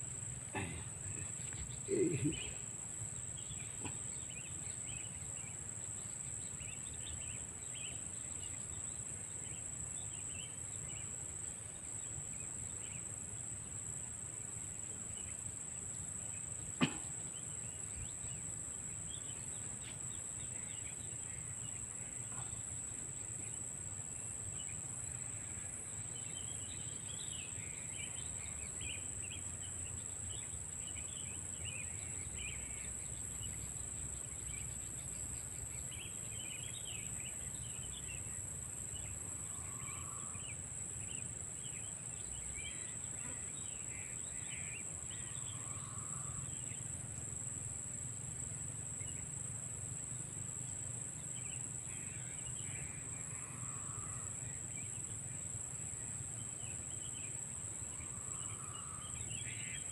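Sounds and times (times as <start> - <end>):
crickets and insects chorus: 0.0 - 59.9
faint chirps: 0.4 - 7.4, 16.6 - 23.6.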